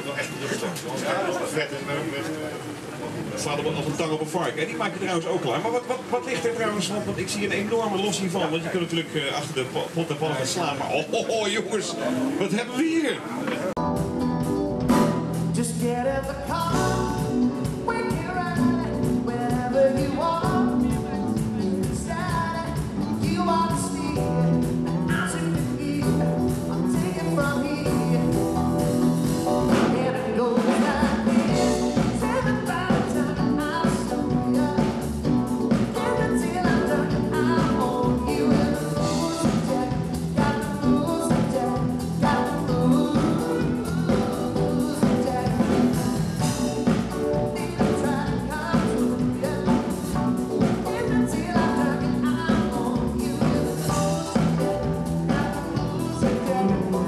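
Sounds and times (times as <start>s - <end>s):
drums: 0.0s - 57.0s
live band playing: 0.0s - 57.0s
person singing: 15.2s - 57.0s.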